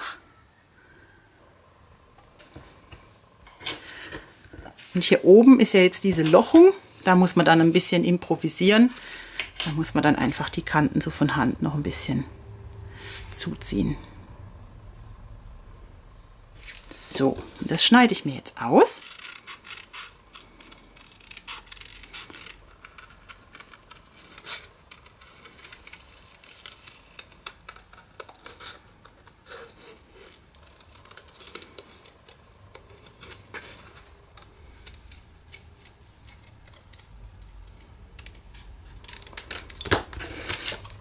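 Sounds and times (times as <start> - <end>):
card rustling: 19.0 - 41.0.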